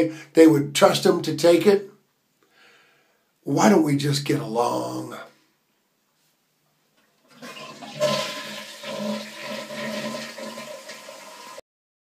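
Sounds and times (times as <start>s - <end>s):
toilet flushing: 7.3s - 11.6s.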